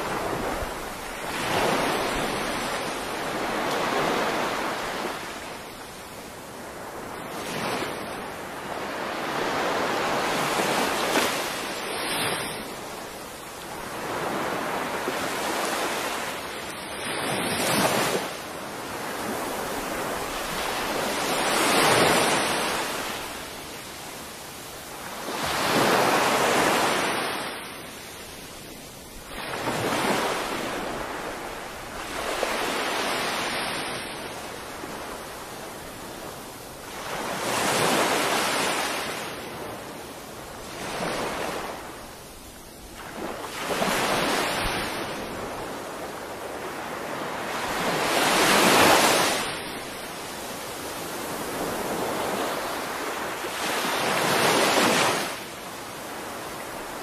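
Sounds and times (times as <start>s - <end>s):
sea waves breaking on sand: 0.0s - 5.9s, 6.6s - 28.0s, 29.2s - 57.0s.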